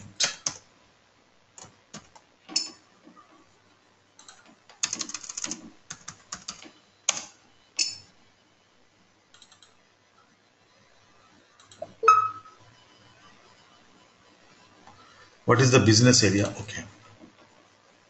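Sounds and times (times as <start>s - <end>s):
keyboard typing: 1.6s - 2.7s, 4.2s - 8.0s
held tone: 12.0s - 12.6s.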